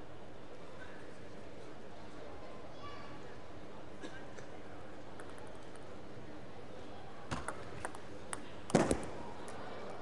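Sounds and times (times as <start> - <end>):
table tennis ball clicking: 5.2 - 5.9, 7.3 - 9.0.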